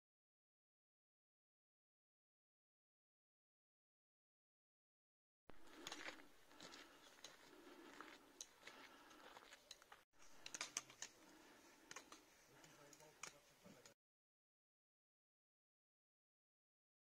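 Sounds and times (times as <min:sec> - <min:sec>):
footsteps on a path: 0:05.5 - 0:13.9.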